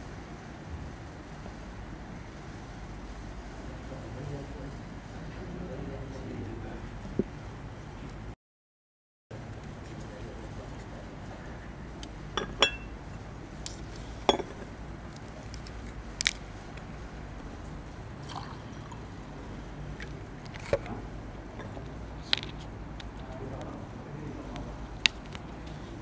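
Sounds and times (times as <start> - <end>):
low room hum: 0.0 - 8.4, 9.3 - 26.0
sharp clicks and clinks: 14.3 - 14.7.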